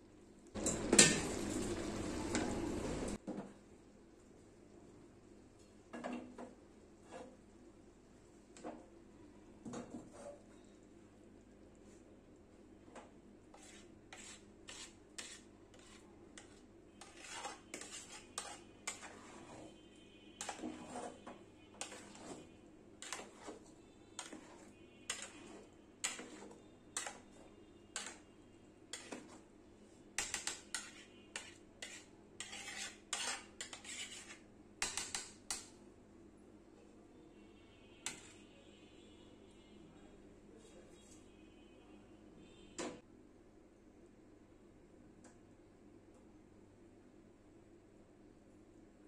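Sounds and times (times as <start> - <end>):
metal spatula scraping pot: 7.0 - 7.4, 9.7 - 10.7, 13.5 - 29.5, 30.1 - 35.7, 38.0 - 38.5.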